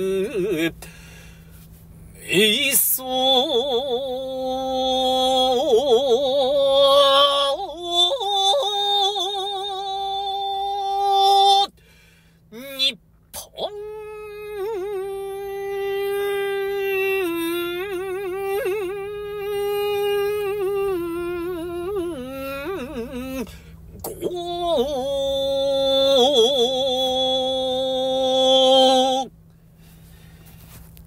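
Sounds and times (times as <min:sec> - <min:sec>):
solo voice chanting poetry: 0:00.0 - 0:01.2, 0:02.2 - 0:29.3.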